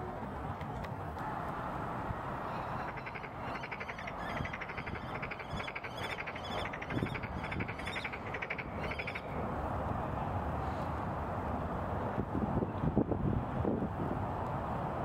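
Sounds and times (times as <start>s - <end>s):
kestrel calling: 2.8s - 9.2s.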